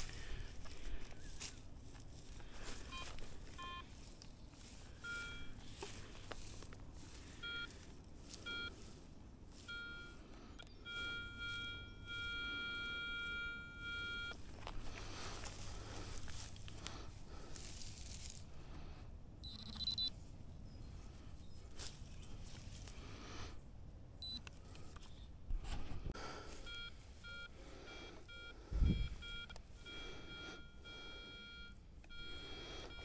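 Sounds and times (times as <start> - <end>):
rustling and scuffing: 0.0 - 10.2, 14.3 - 18.7, 21.1 - 23.2
metal detector beeps: 2.8 - 3.9, 4.9 - 6.0, 7.2 - 7.8, 8.4 - 8.8, 9.6 - 14.4, 19.4 - 20.1, 24.2 - 25.1, 26.2 - 33.0.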